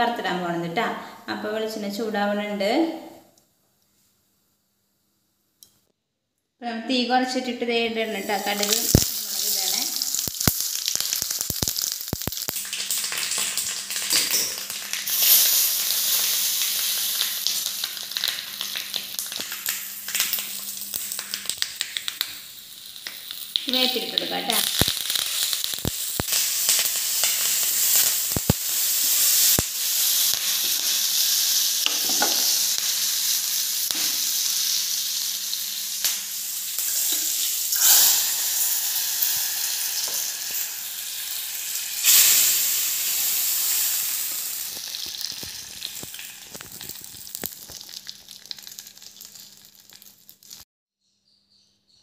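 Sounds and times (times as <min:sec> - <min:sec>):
spices sizzling in hot oil: 0:07.9 - 0:50.6
sharp pops of spices: 0:08.8 - 0:09.2, 0:10.0 - 0:15.5, 0:17.3 - 0:22.4, 0:24.6 - 0:28.8, 0:31.8 - 0:33.0, 0:33.9 - 0:34.4.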